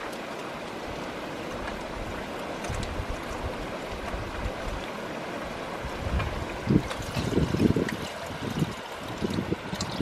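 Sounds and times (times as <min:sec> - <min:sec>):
stream rushing: 0:00.0 - 0:10.0
wind buffeting microphone: 0:05.8 - 0:10.0.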